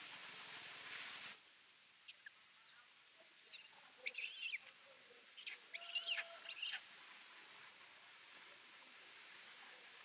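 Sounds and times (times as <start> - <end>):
monkey squealing: 3.4 - 4.6, 5.3 - 6.8.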